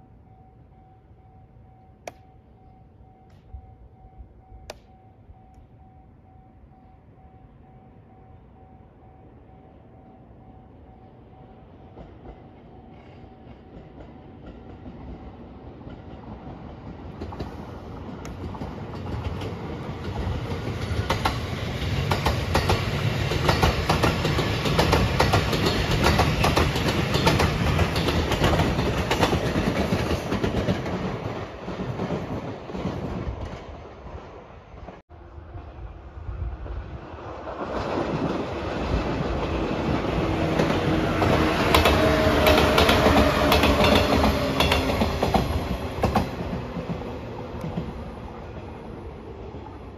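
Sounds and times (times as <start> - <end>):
electric train passing: 0.0 - 49.9
train wheels clacking over rail joints: 15.9 - 33.6, 40.2 - 48.0.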